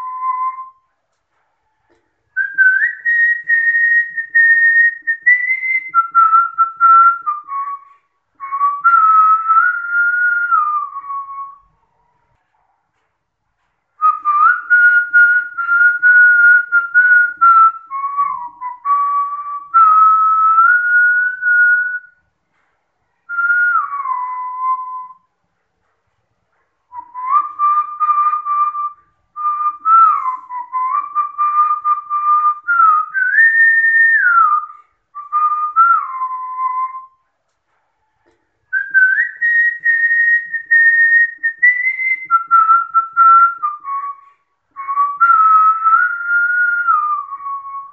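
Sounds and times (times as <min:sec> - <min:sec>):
person whistling a tune: 0:00.0 - 0:11.7, 0:14.0 - 0:22.2, 0:23.3 - 0:25.3, 0:26.9 - 0:37.8, 0:38.7 - 0:47.9.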